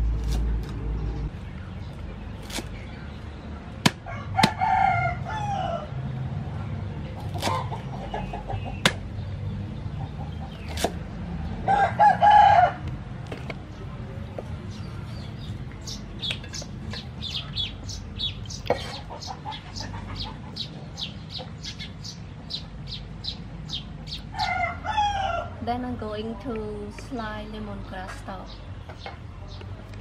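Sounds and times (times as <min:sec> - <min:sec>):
cleaver chopping on wooden block: 0:03.8 - 0:04.6, 0:08.8 - 0:09.0
rooster crowing: 0:04.0 - 0:05.9, 0:11.6 - 0:12.9, 0:24.3 - 0:25.6.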